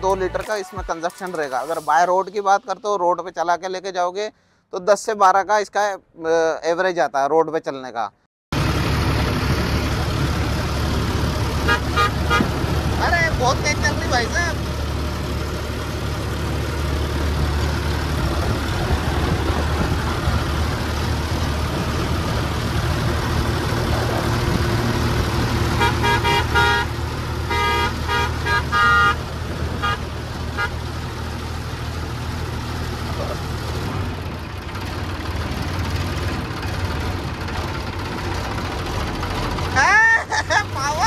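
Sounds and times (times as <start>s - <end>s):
road and wind noise: 0.0s - 41.0s
engine running steadily: 8.5s - 41.0s
vehicle horn short toots: 11.6s - 12.5s, 25.8s - 26.9s, 27.5s - 29.2s, 29.8s - 30.0s, 30.6s - 30.8s.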